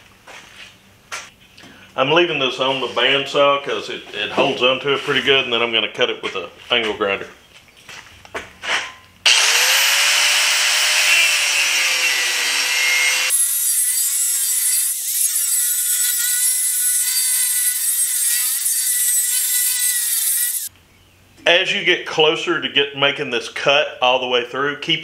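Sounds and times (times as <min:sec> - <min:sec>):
angle grinder cutting steel: 0:09.3 - 0:20.7.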